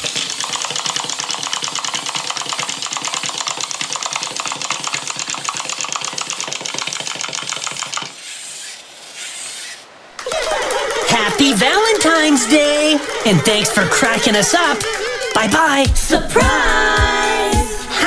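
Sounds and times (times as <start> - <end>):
wind-up toy clockwork clacking: 0.0 - 15.9.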